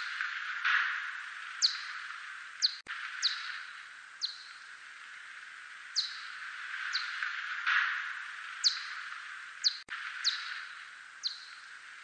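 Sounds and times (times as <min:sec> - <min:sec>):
steady hiss: 0:00.0 - 0:12.0
bat chirps: 0:01.6 - 0:02.0, 0:02.6 - 0:04.6.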